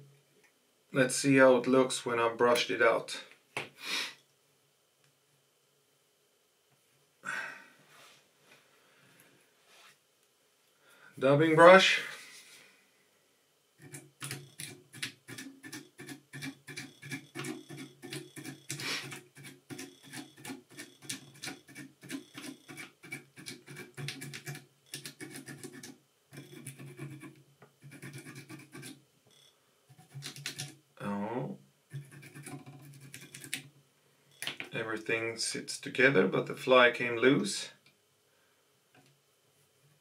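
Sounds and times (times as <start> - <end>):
brush scratching back and forth: 13.8 - 29.0, 29.9 - 30.7, 31.9 - 33.7.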